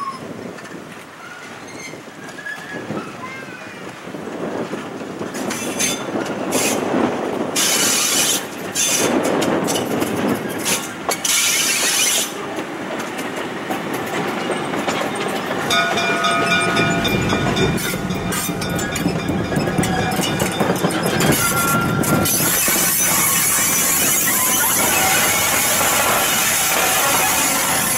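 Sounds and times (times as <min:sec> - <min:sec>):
wheels clicking over rail joints: 0:00.1 - 0:27.9.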